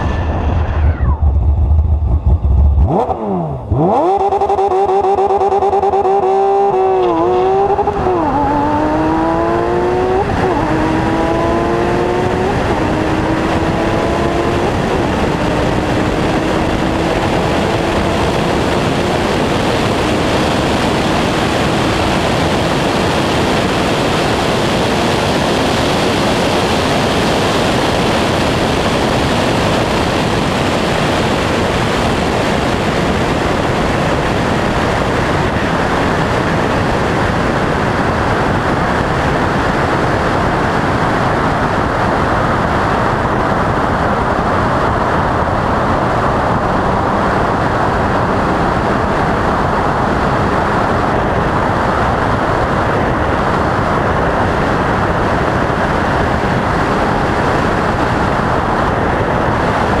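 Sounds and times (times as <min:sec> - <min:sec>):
wind rushing: 0:00.0 - 0:42.4
car road noise: 0:00.0 - 1:00.0.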